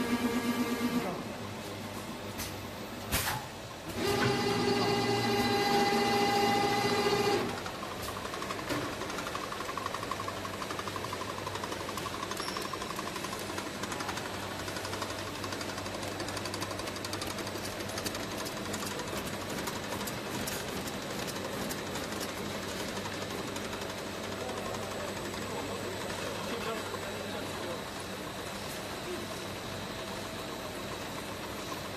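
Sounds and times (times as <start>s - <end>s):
conveyors and capping machinery clattering: 0.1s - 31.9s
rapid clicking: 8.4s - 24.1s.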